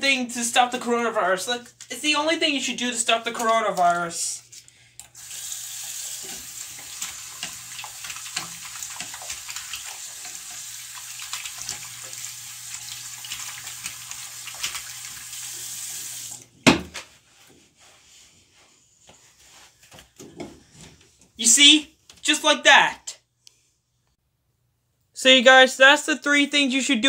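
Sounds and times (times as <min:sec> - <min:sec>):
tap water splashing over hands: 0:06.3 - 0:15.2.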